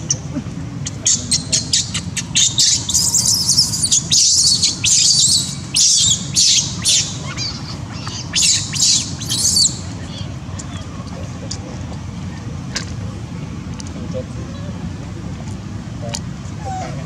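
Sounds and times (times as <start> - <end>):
infant monkey squealing: 0.9 - 10.9, 16.6 - 17.0.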